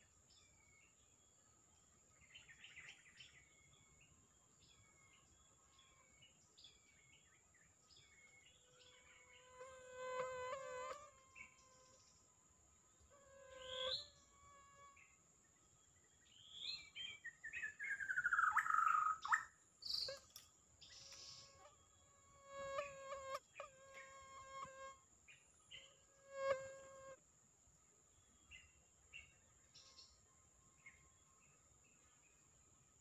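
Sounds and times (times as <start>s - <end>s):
bird singing whistled notes: 16.2s - 20.2s.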